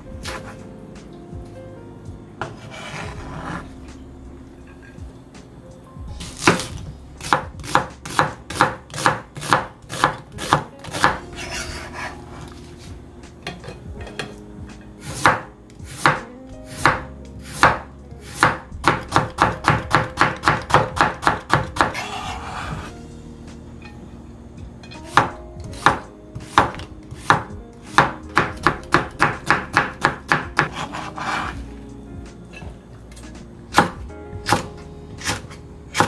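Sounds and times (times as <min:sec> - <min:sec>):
knife chopping on cutting board: 0:00.2 - 0:00.6, 0:06.2 - 0:12.6, 0:15.0 - 0:22.9, 0:25.1 - 0:31.6, 0:33.7 - 0:36.0.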